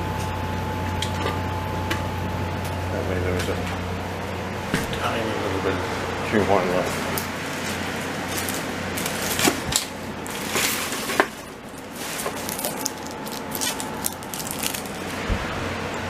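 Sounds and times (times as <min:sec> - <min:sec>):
steady low hum: 0:00.0 - 0:16.0
plastic bag crinkling: 0:07.5 - 0:15.2.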